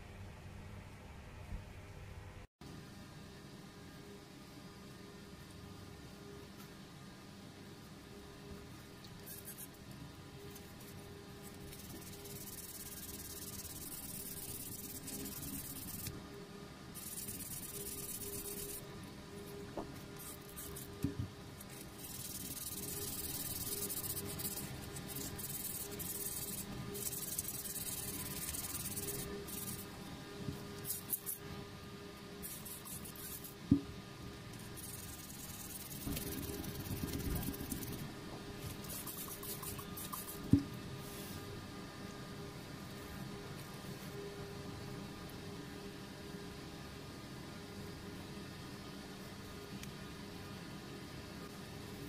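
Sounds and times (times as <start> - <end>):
sandpaper rubbing plastic: 11.6 - 16.1, 21.6 - 29.9, 34.8 - 38.1.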